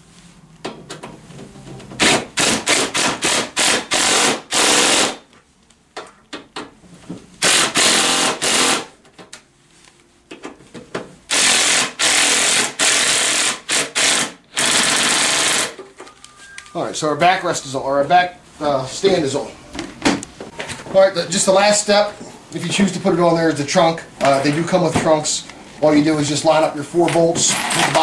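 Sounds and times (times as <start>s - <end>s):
power drill driving bolts: 2.0s - 5.2s, 7.4s - 8.9s, 11.3s - 15.8s, 27.1s - 28.0s.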